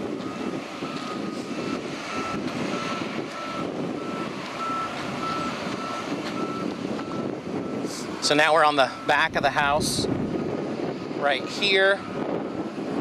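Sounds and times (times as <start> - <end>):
engine rumble: 0.0 - 13.0
wind noise: 0.0 - 13.0
backup alarm beeping: 0.2 - 9.8.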